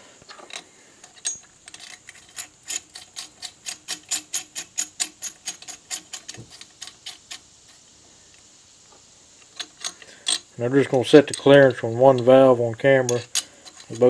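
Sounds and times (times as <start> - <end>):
hand ratchet clicking: 0.5 - 7.8, 13.0 - 14.0.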